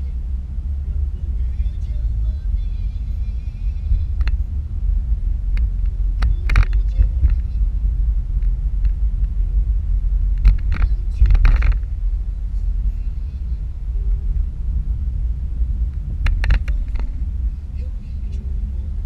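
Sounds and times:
car road rumble inside cabin: 0.0s - 19.0s
sharp clicks and rattles: 3.8s - 4.6s, 5.4s - 7.8s, 10.2s - 12.0s, 15.9s - 17.3s.

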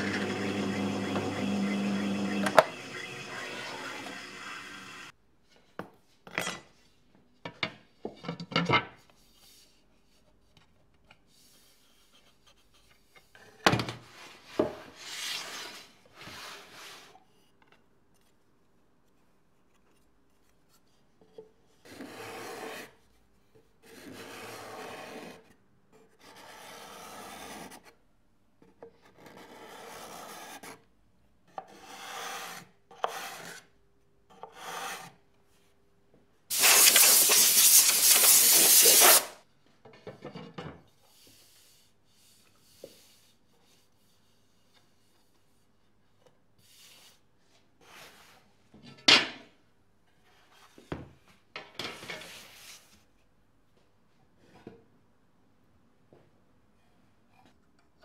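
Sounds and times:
wood and tools knocking: 0.0s - 4.2s
card scraper shaving wood: 0.0s - 5.1s, 36.5s - 39.4s.

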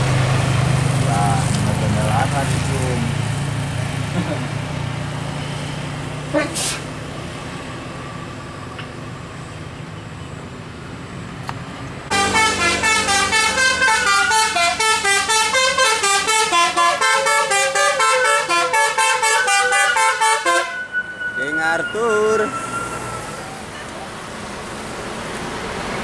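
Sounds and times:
engine and road noise: 0.0s - 26.0s
musical bus air horn: 12.1s - 23.5s.

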